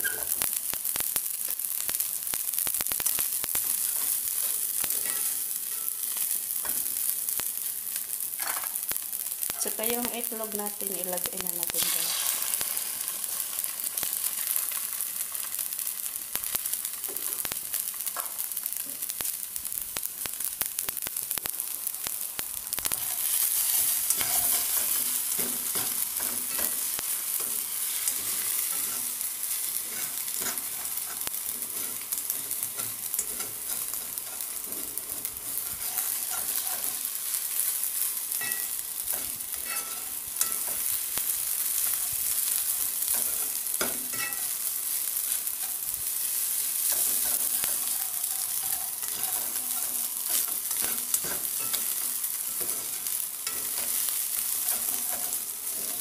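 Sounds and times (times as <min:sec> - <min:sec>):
food sizzling in a wok: 0:00.0 - 0:56.0
spatula scraping and tapping pan: 0:03.5 - 0:07.0, 0:22.9 - 0:37.4, 0:38.3 - 0:41.0, 0:43.0 - 0:44.6, 0:46.6 - 0:56.0.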